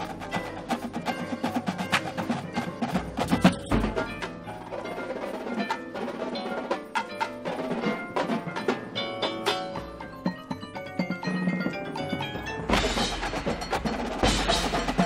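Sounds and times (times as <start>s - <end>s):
mallet keyboards: 0.0s - 15.0s
tenor drums beating: 0.0s - 15.0s.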